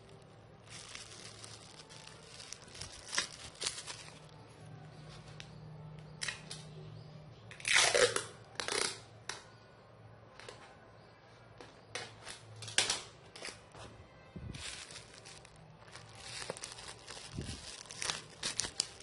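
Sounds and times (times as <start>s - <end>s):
wrapping material rustling: 0.0s - 4.4s, 14.4s - 19.0s.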